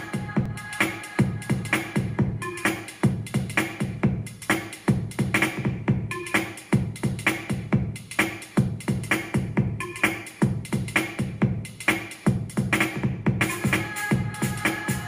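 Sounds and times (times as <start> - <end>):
electronic dance music: 0.0 - 15.0.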